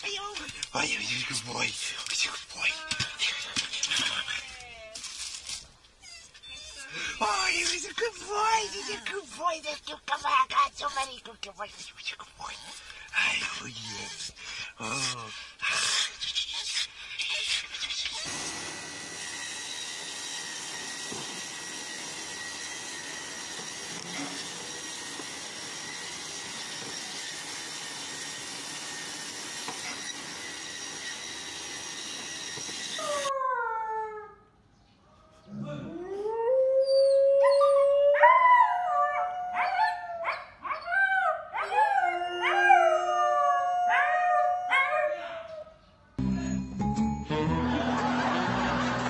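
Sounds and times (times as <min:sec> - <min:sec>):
woodworking machine humming: 0:18.3 - 0:33.3
dogs howling: 0:33.0 - 0:34.4, 0:35.6 - 0:45.8.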